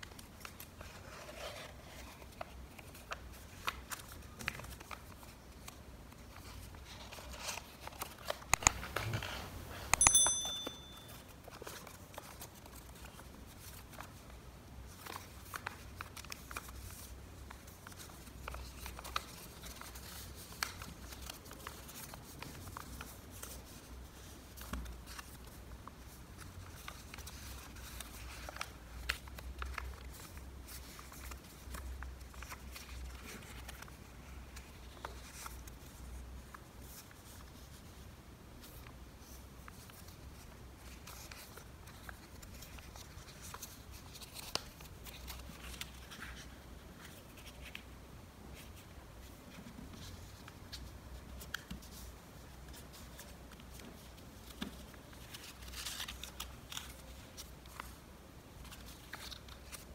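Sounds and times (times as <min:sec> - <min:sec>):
paper rustling and crinkling: 0:00.0 - 0:09.9, 0:11.0 - 0:38.0, 0:38.6 - 0:47.9, 0:48.5 - 0:59.9
brief high-pitched ring: 0:09.9 - 0:11.3.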